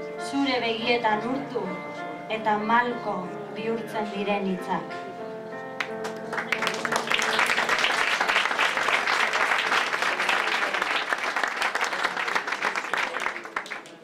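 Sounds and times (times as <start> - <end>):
held keyboard notes: 0.0 - 9.1
audience applauding: 5.8 - 14.0.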